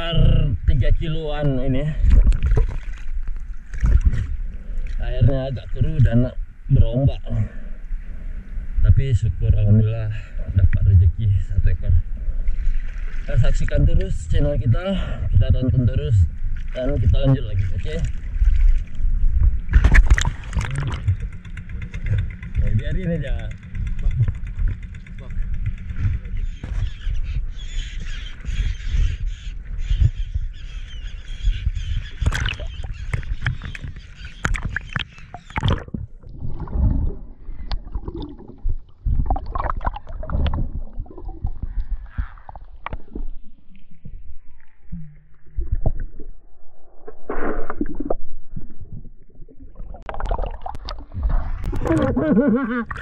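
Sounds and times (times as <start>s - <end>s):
muffled underwater rumbling: 0.0s - 53.0s
sea waves slapping and splashing: 16.4s - 22.6s.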